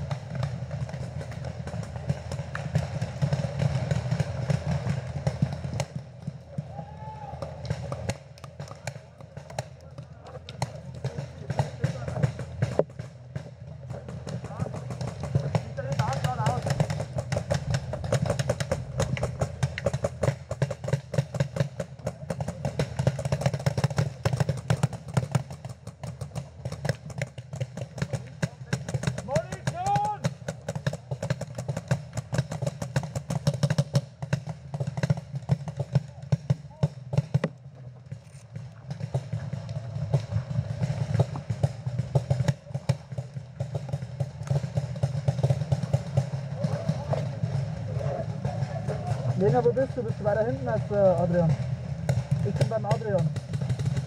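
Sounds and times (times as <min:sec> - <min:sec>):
paintball markers firing: 0:07.3 - 0:47.7
low rumble: 0:15.2 - 0:20.6.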